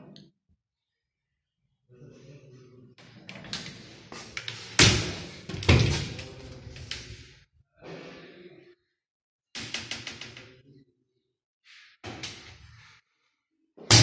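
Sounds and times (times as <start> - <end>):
cabinet doors clicking and knocking: 4.8 - 6.4.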